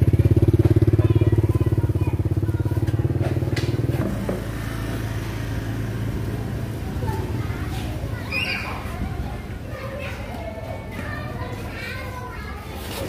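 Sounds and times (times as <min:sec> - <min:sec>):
small motorbike engine running: 0:00.0 - 0:09.6.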